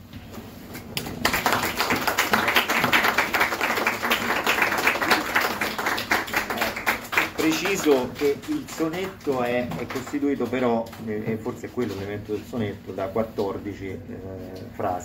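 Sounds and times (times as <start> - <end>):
audience applauding: 1.0 - 10.8.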